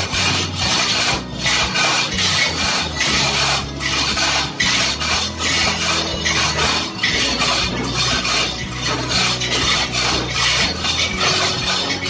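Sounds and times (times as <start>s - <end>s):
chain running through hoist: 0.0s - 12.0s.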